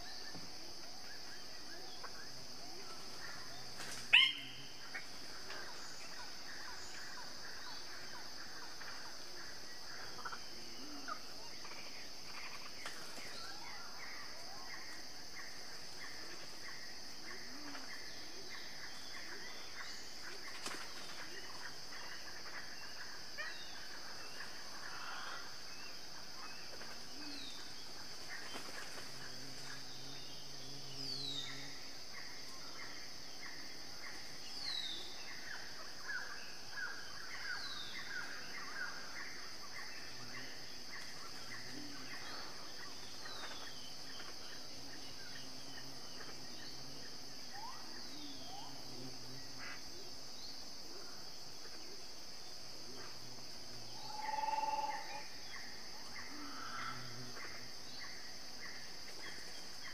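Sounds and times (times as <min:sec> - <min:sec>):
high-pitched insect drone: 0:00.0 - 0:59.9
birds calling: 0:03.5 - 0:07.0.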